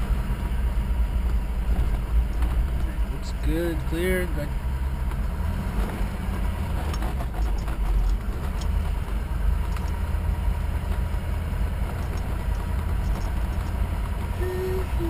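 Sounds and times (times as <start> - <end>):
truck engine and tyres rumbling: 0.0 - 15.0
faint rattles and ticks: 1.2 - 4.2, 6.6 - 14.4.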